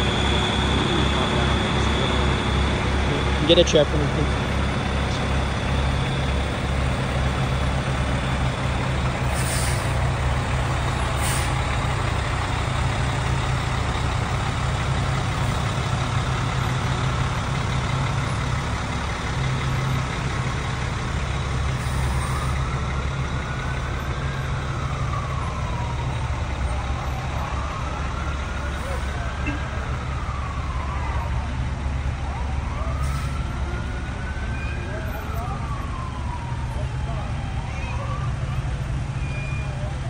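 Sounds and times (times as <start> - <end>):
large vehicle engine rumbling: 0.0 - 40.0
air brake hisses: 9.3 - 10.0, 11.2 - 11.6.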